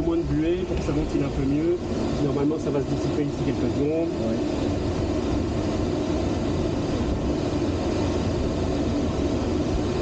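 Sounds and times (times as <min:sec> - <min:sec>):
rush of airflow: 0:00.0 - 0:10.0.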